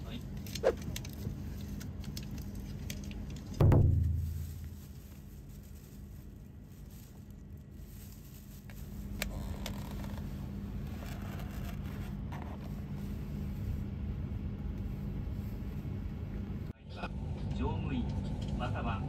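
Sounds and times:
train carriage hum and rumble: 0.0 - 19.0
rustling and scraping of packaging: 0.4 - 13.9.

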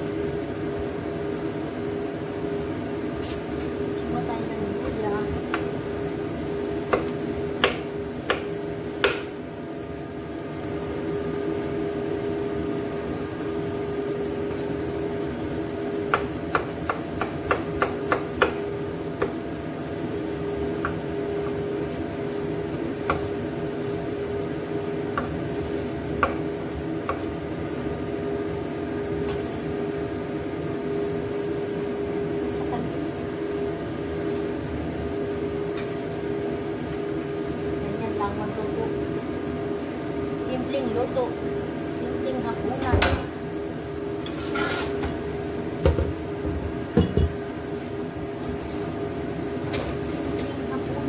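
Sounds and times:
steady hum: 0.0 - 51.0
knife chopping on wooden board: 6.9 - 9.3, 16.1 - 18.6, 23.0 - 23.3, 25.1 - 26.4.

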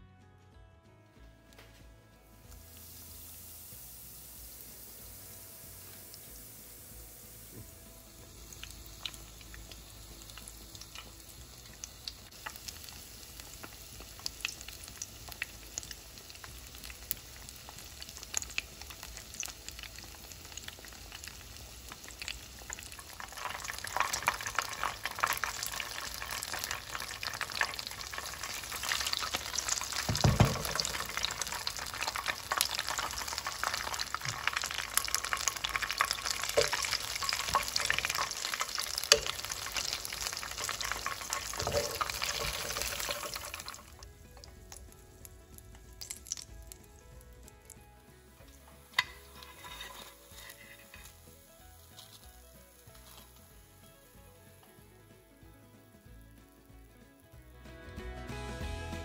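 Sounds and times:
bread rolls frying in hot oil: 2.4 - 54.2
low thump: 30.0 - 31.0.

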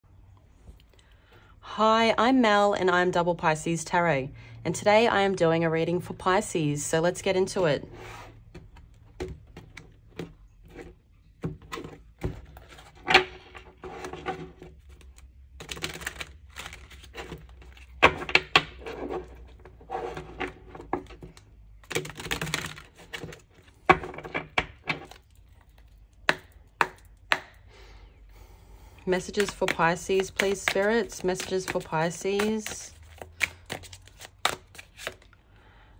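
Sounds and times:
cards being shuffled: 8.1 - 23.8, 29.2 - 35.4.

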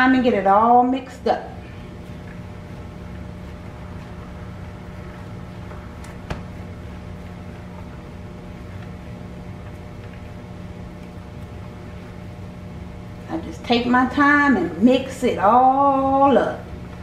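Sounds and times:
low mechanical hum: 0.0 - 17.0.

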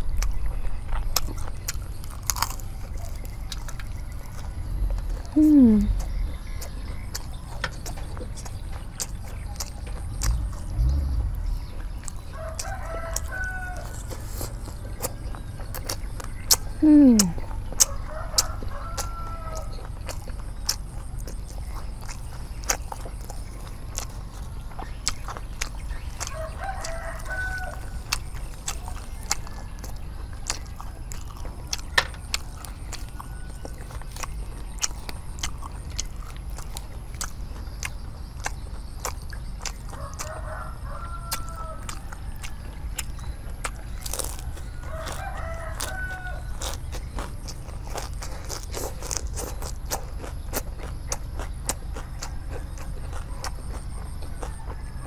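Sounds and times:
crunchy chewing: 0.0 - 55.0
rooster crowing: 10.9 - 14.2, 17.8 - 19.9, 26.2 - 28.1, 39.9 - 42.9, 43.7 - 46.8, 54.2 - 55.0.

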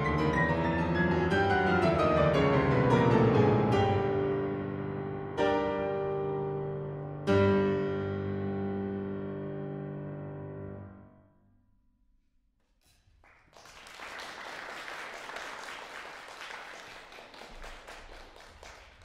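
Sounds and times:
audience applause: 13.2 - 19.0.

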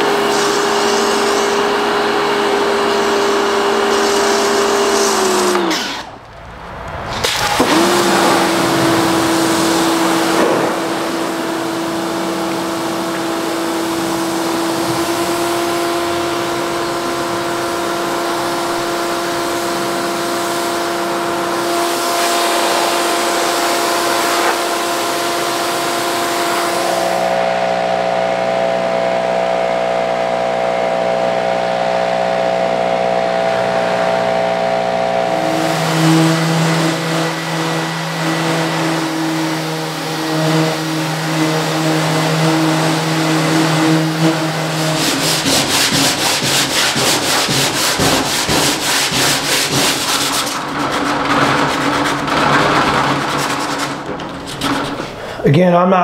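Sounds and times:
steady humming tones: 6.0 - 55.6
sandpaper rubbing on steel: 20.4 - 27.2, 35.5 - 55.2.

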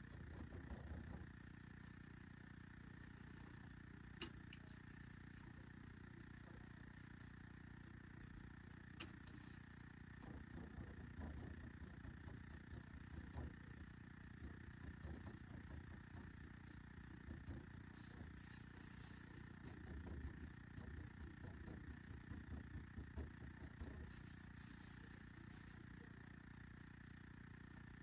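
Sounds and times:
faint low room rumble: 0.0 - 28.0
paintbrush strokes on board: 14.6 - 21.9, 23.8 - 25.9.

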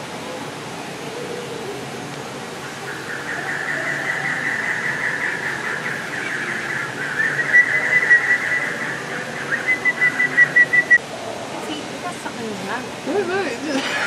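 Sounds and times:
high-pitched background hum: 0.0 - 12.3.

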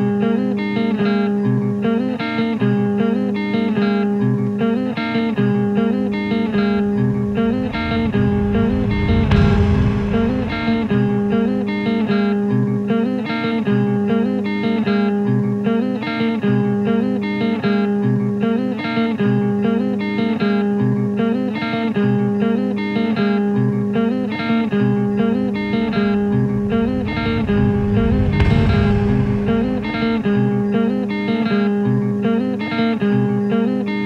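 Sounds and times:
held low notes: 5.9 - 12.4, 24.7 - 31.4.

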